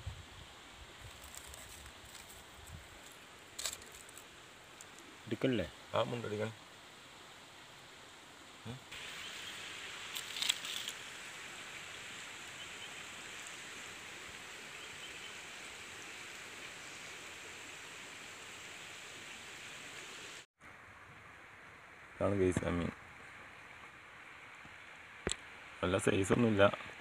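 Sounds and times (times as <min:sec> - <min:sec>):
soft forest hiss: 0:00.0 - 0:27.0.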